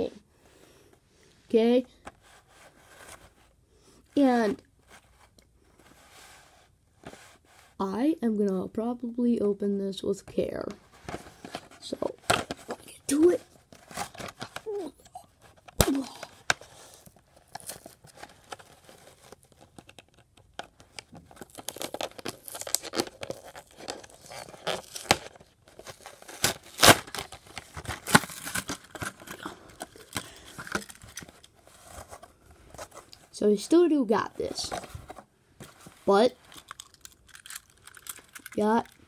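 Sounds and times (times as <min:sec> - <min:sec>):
plastic packaging crinkling: 0:15.8 - 0:33.2, 0:34.7 - 0:39.0.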